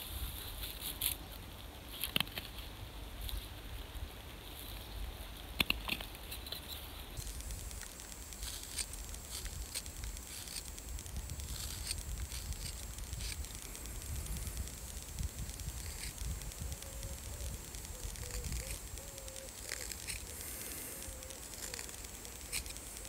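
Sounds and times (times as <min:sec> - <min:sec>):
sharp clicks: 0:05.5 - 0:23.0
knife shaving wood: 0:05.6 - 0:23.0.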